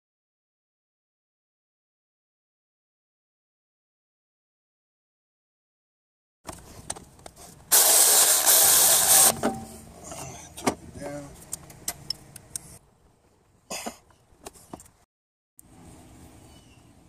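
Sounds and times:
loud steady hiss: 0:07.7 - 0:09.4.

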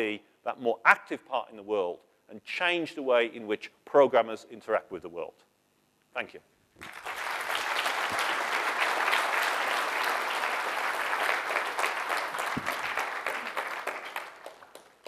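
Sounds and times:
audience applauding: 0:06.8 - 0:15.0.

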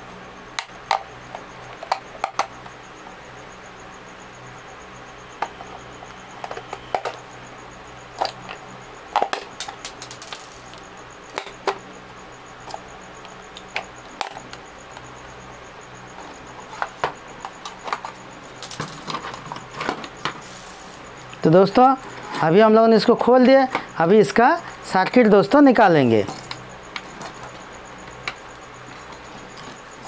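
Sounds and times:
plastic clips cracking: 0:09.3 - 0:10.8.

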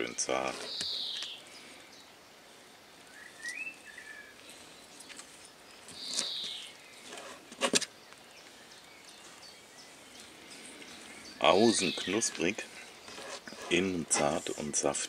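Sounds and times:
bird chirping: 0:00.0 - 0:14.9
knife scraping: 0:00.4 - 0:00.8, 0:13.0 - 0:14.7.

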